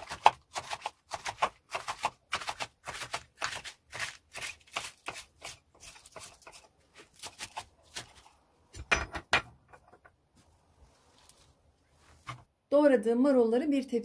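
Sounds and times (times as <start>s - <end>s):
knife chopping on wooden board: 0.0s - 6.6s.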